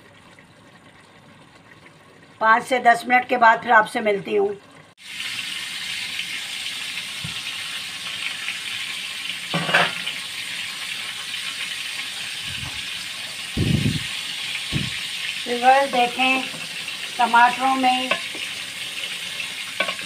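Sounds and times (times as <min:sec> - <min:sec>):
food sizzling in a pot: 0:04.2 - 0:20.0
pot lid clatter: 0:09.5 - 0:10.1, 0:19.8 - 0:20.0.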